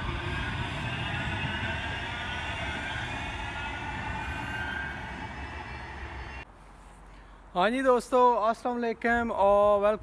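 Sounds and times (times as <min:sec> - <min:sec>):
electric tram traction whine: 0:00.0 - 0:06.5
wheels rumbling on rails: 0:00.0 - 0:06.5.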